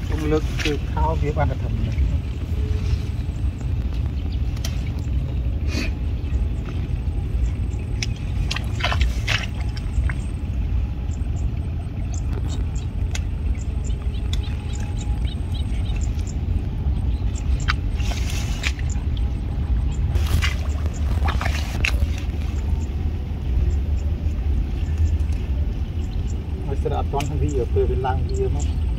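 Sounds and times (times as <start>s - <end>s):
wind rumbling on microphone: 0.0s - 28.9s
plant stems snapping and rustling: 3.8s - 5.0s, 20.2s - 22.6s.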